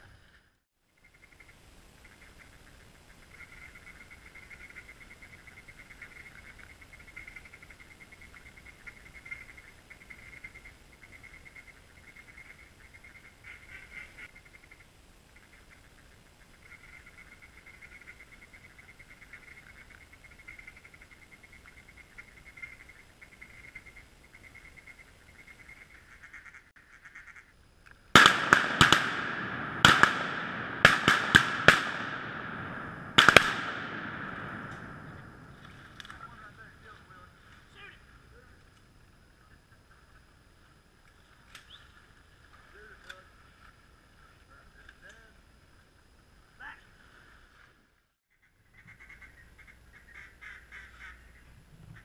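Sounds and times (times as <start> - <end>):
shotgun shots echoing: 28.2 - 35.7.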